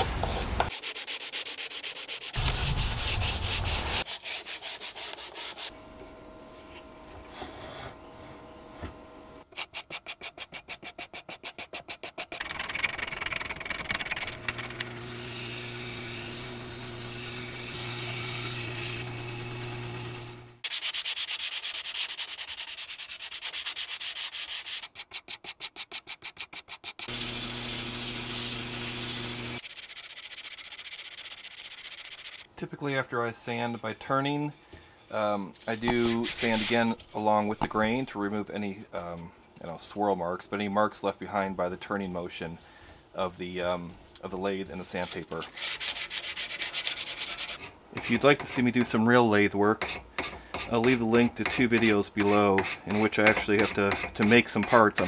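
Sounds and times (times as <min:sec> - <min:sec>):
sanding and scraping wood: 0:00.2 - 0:05.7, 0:13.9 - 0:32.5, 0:33.4 - 0:38.4, 0:44.8 - 0:49.0, 0:49.8 - 0:55.0
sanding spindle on lathe: 0:00.7 - 0:05.7, 0:14.5 - 0:24.8, 0:27.1 - 0:32.5, 0:33.5 - 0:38.1, 0:50.6 - 0:55.0.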